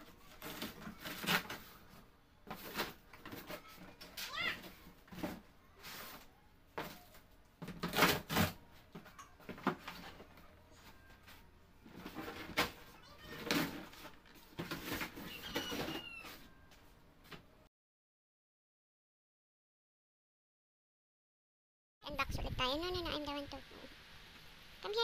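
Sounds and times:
plastic drawers clattering: 7.6s - 8.6s, 11.9s - 16.1s.

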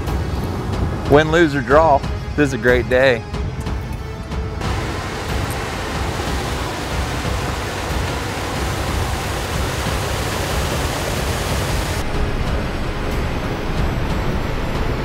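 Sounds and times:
low engine rumble: 4.6s - 15.0s.

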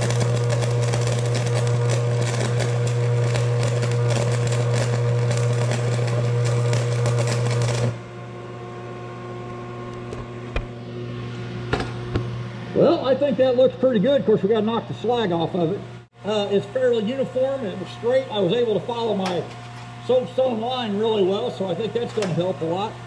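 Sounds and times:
welding arc crackling: 0.0s - 8.1s, 16.3s - 22.9s
welder humming: 0.0s - 23.0s.

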